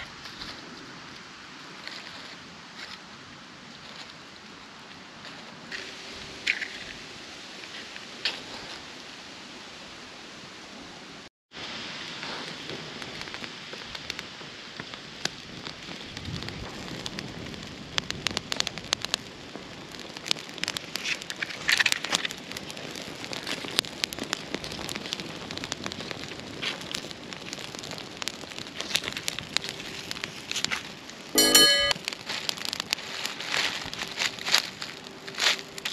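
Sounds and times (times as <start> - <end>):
sizzling hiss over fire: 0.0 - 35.9
wood fire crackling and popping: 12.0 - 35.9.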